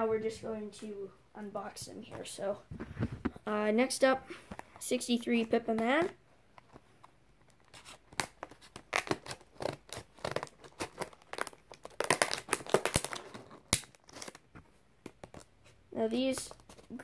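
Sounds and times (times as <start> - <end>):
plastic packaging crinkling: 7.5 - 14.5.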